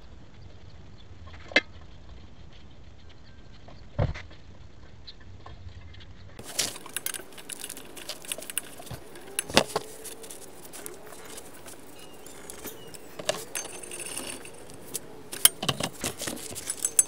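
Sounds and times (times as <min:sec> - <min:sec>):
metal hand tools clinking: 0:06.4 - 0:17.0.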